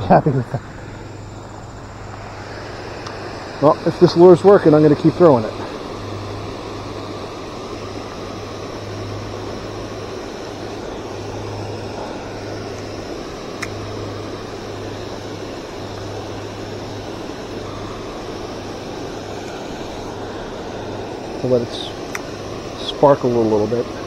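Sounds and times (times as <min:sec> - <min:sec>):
sharp click: 0:13.6 - 0:13.8, 0:22.1 - 0:22.3.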